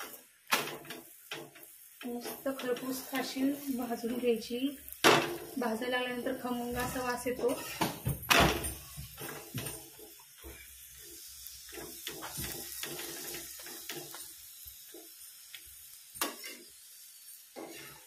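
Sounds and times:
ghee sizzling on a hot pan: 0:00.0 - 0:18.0
spatula scraping a pan: 0:00.7 - 0:04.3, 0:05.1 - 0:08.0, 0:08.7 - 0:15.3, 0:16.2 - 0:18.0.

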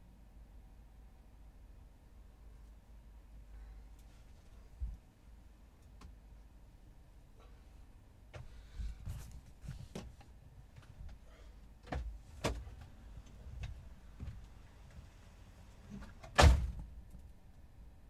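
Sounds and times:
van door thump: 0:16.2 - 0:17.0.

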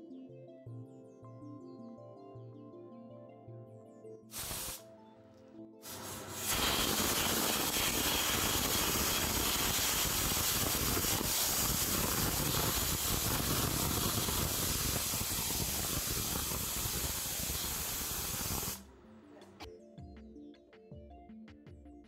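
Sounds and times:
pressure cooker steam hissing: 0:04.4 - 0:04.8, 0:05.9 - 0:18.8.

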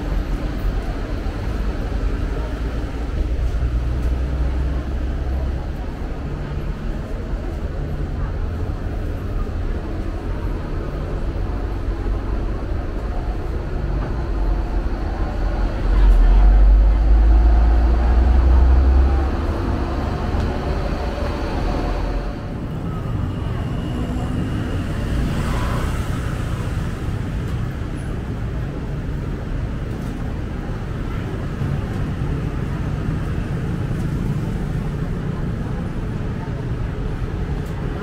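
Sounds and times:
faint voices: 0:00.0 - 0:38.0
traffic noise: 0:00.0 - 0:38.0
deep rumble: 0:10.5 - 0:24.3.

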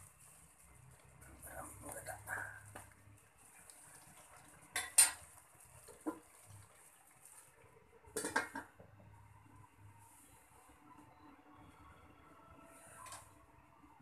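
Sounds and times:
metal lid clattering on wok: 0:04.7 - 0:05.2, 0:08.1 - 0:08.7
metal cookware clanking: 0:04.7 - 0:06.3, 0:08.1 - 0:08.8.

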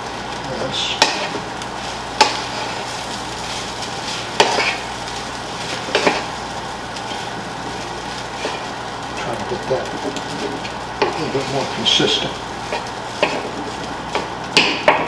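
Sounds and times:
rice sizzling in a frying pan: 0:00.0 - 0:15.0
wooden spatula scraping a pan: 0:01.0 - 0:04.9, 0:05.6 - 0:06.4, 0:08.2 - 0:08.7, 0:10.0 - 0:11.9, 0:12.6 - 0:13.6.

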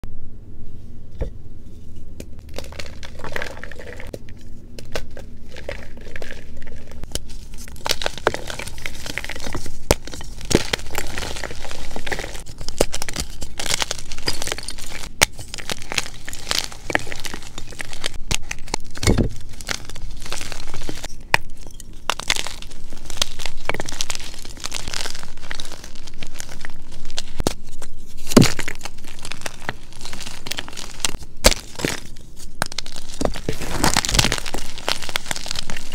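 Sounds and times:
chalk crumbling by hand: 0:02.5 - 0:35.9
chalk chunks snapping: 0:22.1 - 0:35.9.

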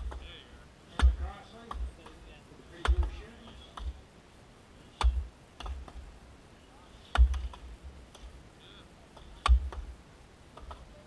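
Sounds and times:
axe chopping into log: 0:09.4 - 0:09.8.

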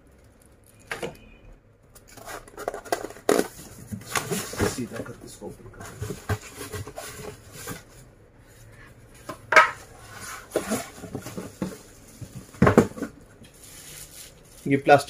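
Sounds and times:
packaging rustling: 0:02.0 - 0:05.2, 0:10.1 - 0:14.8
plastic parts clattering: 0:02.0 - 0:05.2.

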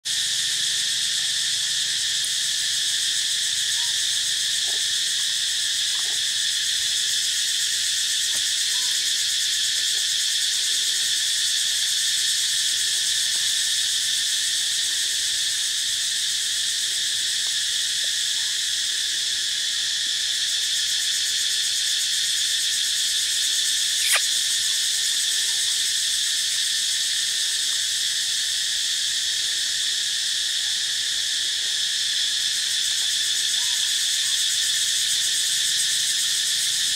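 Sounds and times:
high-pitched insect chorus: 0:00.0 - 0:36.9
short sharp click: 0:24.0 - 0:24.3.

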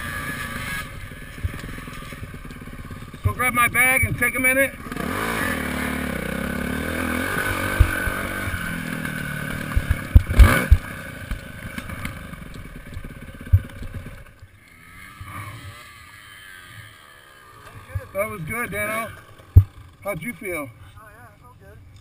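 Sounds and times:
dirt bike engine revving: 0:00.0 - 0:20.8.

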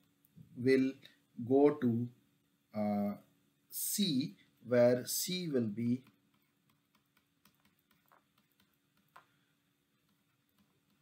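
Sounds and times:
stylus tapping on tablet screen: 0:06.0 - 0:11.0.

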